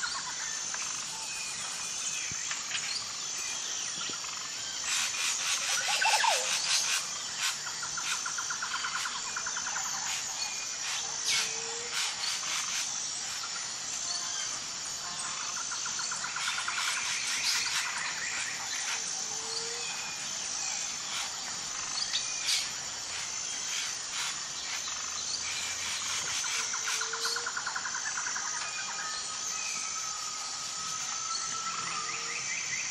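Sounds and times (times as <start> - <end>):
birds chirping and tweeting: 0.0 - 32.9
insect calls: 0.0 - 32.9.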